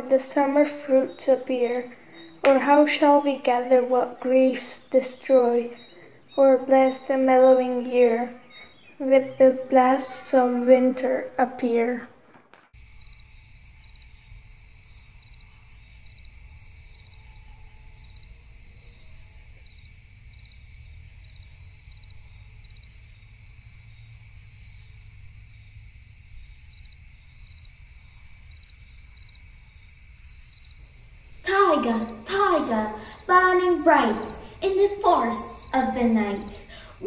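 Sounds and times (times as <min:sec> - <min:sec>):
crickets chirping: 0:00.0 - 0:12.0, 0:12.8 - 0:37.0
high insect hiss: 0:12.8 - 0:37.0.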